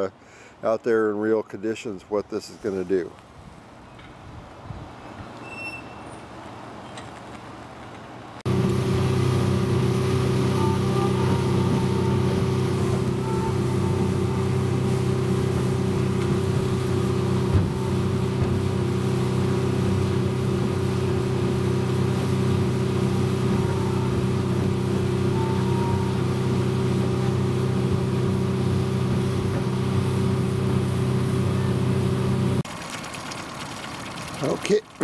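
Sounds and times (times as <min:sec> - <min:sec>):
outboard motor running: 0:08.5 - 0:34.8.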